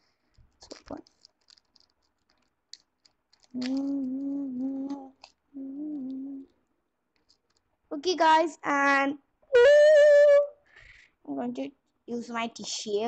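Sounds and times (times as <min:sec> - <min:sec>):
packet crinkling: 0:00.0 - 0:07.7
girl humming: 0:03.6 - 0:06.6, 0:09.5 - 0:10.6.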